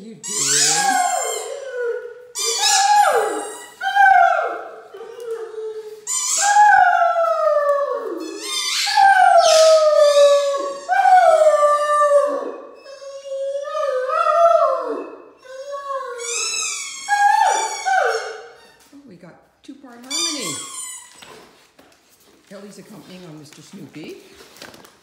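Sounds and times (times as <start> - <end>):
squeaky toy squealing: 0.2 - 1.6, 2.4 - 3.8, 6.1 - 6.6, 8.2 - 10.9, 16.2 - 18.8, 20.1 - 21.3
dog howling: 0.4 - 5.6, 6.3 - 18.4.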